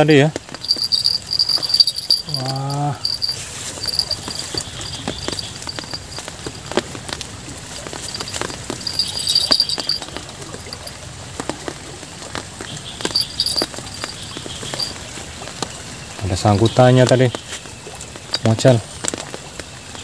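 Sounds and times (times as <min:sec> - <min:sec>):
raindrops tapping on leaves: 0:00.0 - 0:20.0
river rushing: 0:00.6 - 0:16.1
short high chirping: 0:08.2 - 0:10.1.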